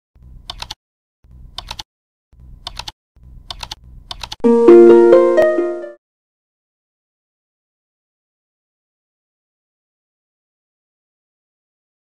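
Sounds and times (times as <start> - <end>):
keyboard typing clicks: 0.4 - 0.8, 1.5 - 1.8, 2.6 - 4.5
bright chime chord: 4.5 - 6.0.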